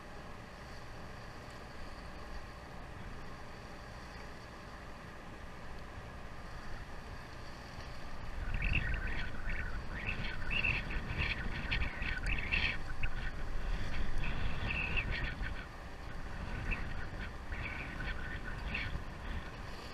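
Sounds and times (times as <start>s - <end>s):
boat noise: 0.0s - 19.9s
wind rumble: 0.0s - 19.9s
high chirping squeals: 8.3s - 15.8s, 16.4s - 19.9s.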